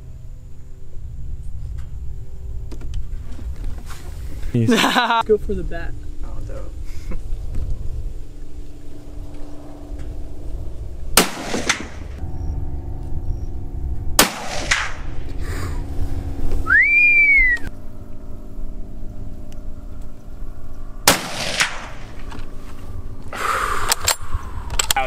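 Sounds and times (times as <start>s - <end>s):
rifle shots with echo: 11.2s - 12.2s, 14.2s - 15.1s, 21.0s - 22.1s
rising and falling whistle: 16.6s - 17.8s.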